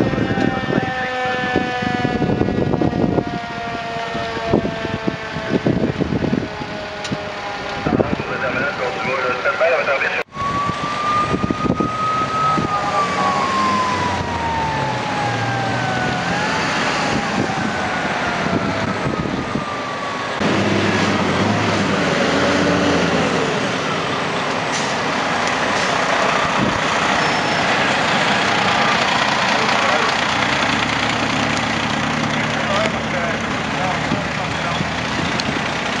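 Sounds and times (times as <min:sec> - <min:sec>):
siren winding down: 0:00.0 - 0:24.4, 0:25.8 - 0:31.9
truck engines idling: 0:11.7 - 0:36.0.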